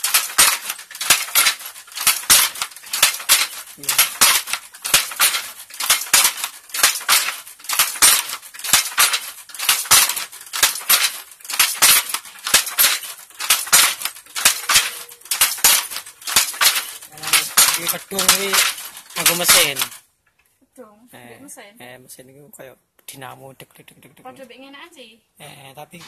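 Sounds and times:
wooden hand loom clattering: 0.0s - 20.0s.

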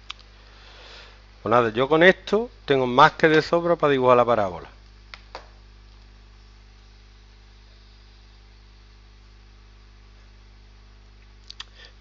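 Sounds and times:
faint click: 0.0s - 0.3s, 11.4s - 11.8s
mains hum with hiss: 0.0s - 12.0s.

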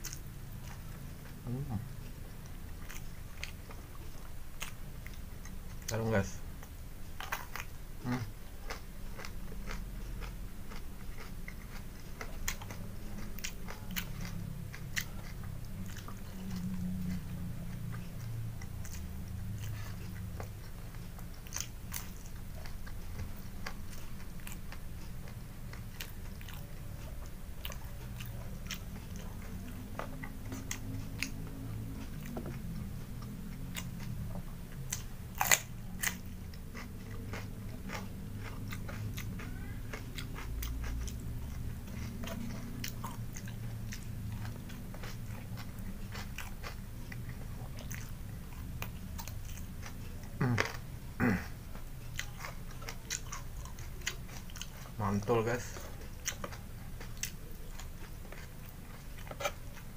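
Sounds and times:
person crunching raw vegetables: 7.2s - 59.9s.

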